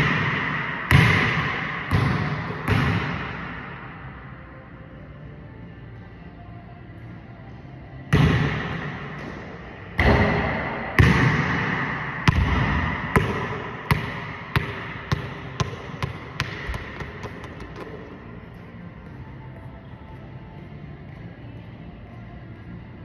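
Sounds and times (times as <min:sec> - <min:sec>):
basketball bouncing on hardwood floor: 0:12.2 - 0:18.0.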